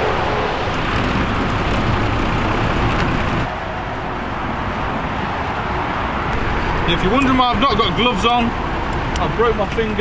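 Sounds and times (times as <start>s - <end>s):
motorway traffic roar: 0.0s - 10.0s.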